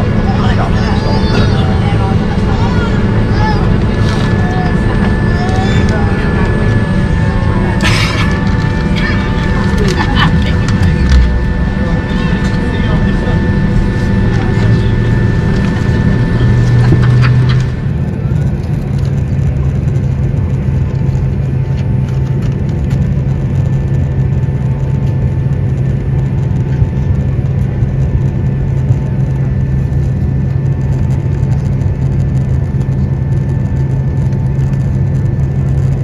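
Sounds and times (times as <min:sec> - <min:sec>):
jet airliner taxiing: 0:00.0 - 0:36.0
low engine hum: 0:00.0 - 0:36.0
rushing noise: 0:02.9 - 0:18.6.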